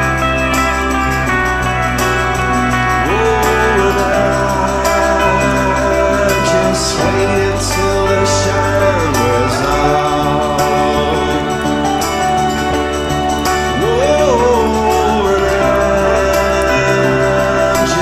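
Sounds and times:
organ-like chords: 0:00.0 - 0:18.0
sliding melody line: 0:00.0 - 0:18.0
steady bass: 0:00.0 - 0:18.0.

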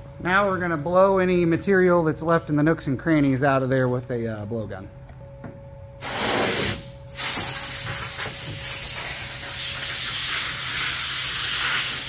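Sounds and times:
compressed air blowgun blasting: 0:06.0 - 0:12.0.

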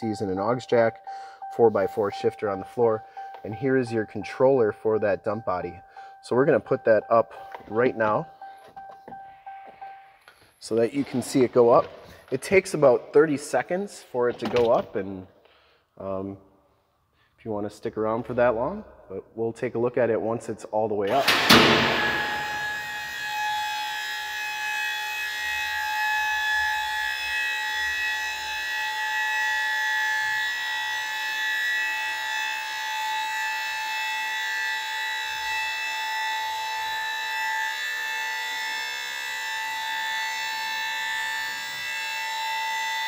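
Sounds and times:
hydraulic pump whining: 0:21.1 - 0:29.0.

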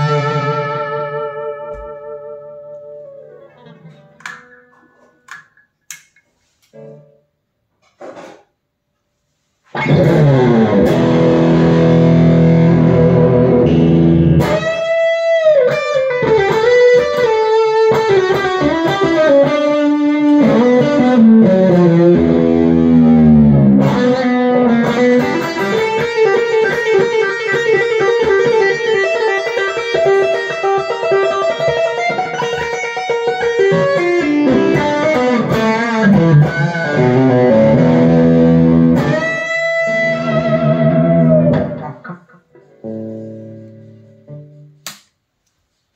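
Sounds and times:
electric guitar lead with bends: 0:00.0 - 0:05.3, 0:09.7 - 0:44.8.

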